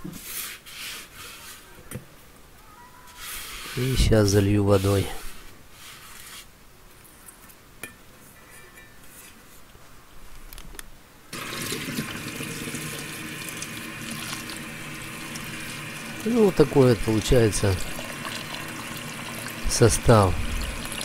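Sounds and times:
water running into a metal pot: 11.4s - 21.0s.

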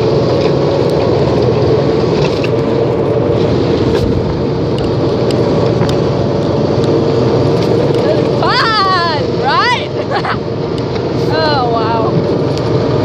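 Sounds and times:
car interior road noise: 0.0s - 13.0s.

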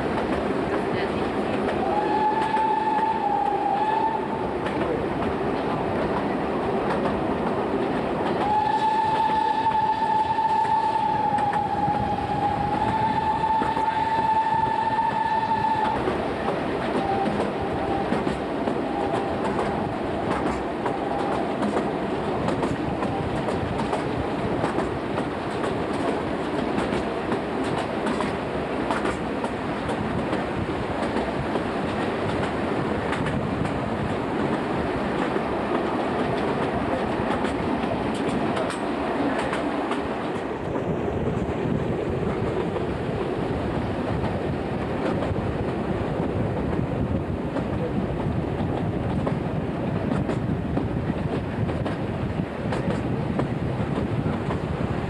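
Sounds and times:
rail joint clicks: 0.0s - 54.7s
train running noise: 0.0s - 55.0s
steam locomotive whistle: 1.8s - 4.5s, 8.4s - 19.9s, 20.8s - 21.5s.

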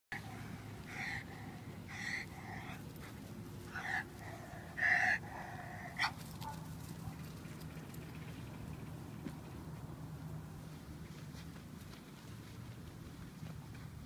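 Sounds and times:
dog barking: 3.8s - 7.2s.

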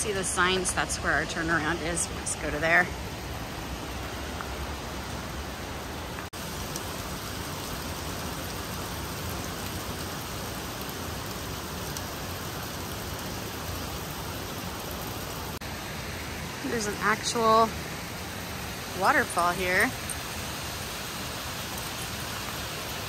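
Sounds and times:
river water rushing: 0.0s - 23.0s.

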